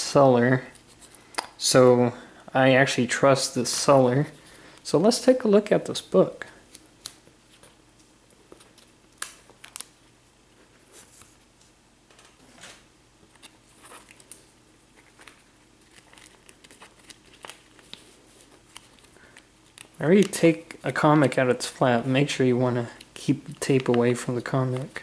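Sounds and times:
plastic sleeve crinkling: 0:13.3 - 0:25.0.

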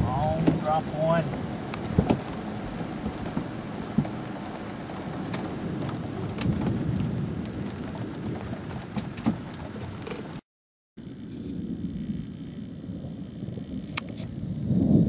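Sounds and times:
low rumble of thunder: 0:00.0 - 0:10.4, 0:11.0 - 0:15.0
rain falling steadily: 0:00.0 - 0:10.4
raindrops ticking close by: 0:00.0 - 0:10.4.

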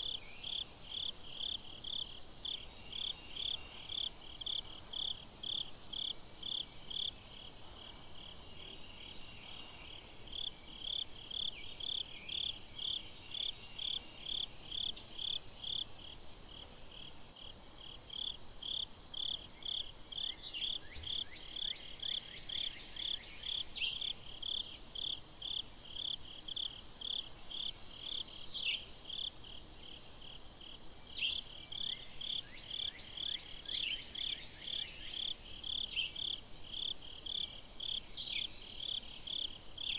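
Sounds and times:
cricket chirping: 0:00.0 - 0:39.9.

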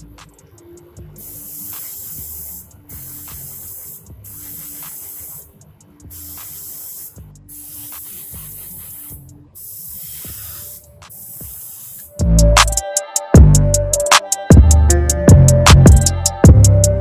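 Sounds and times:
airbrush spraying hiss: 0:00.0 - 0:13.3.

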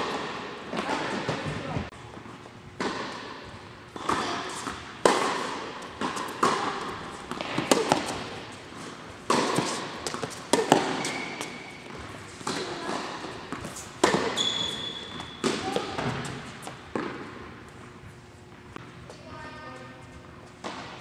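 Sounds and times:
racket striking tennis ball: 0:02.8 - 0:17.6
tennis ball bouncing: 0:02.8 - 0:17.9.

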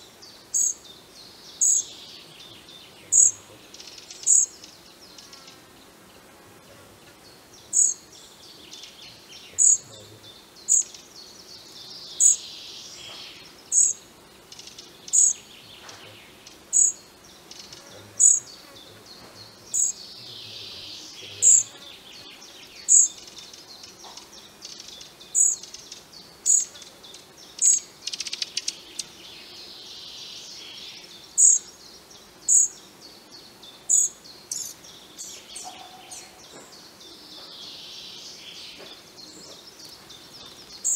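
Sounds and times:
fledgling bird begging calls: 0:21.4 - 0:21.7.

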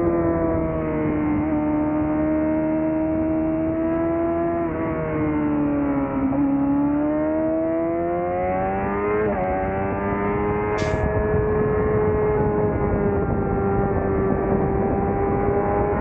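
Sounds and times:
motorcycle engine accelerating: 0:00.0 - 0:16.0
wind noise: 0:10.6 - 0:16.0.

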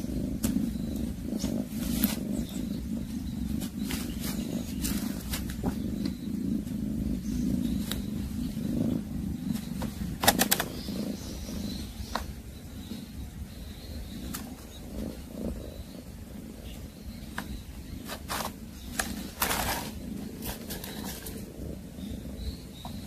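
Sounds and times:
low rumble: 0:00.0 - 0:23.0
clicks and rattles in plastic basket: 0:10.2 - 0:10.7.

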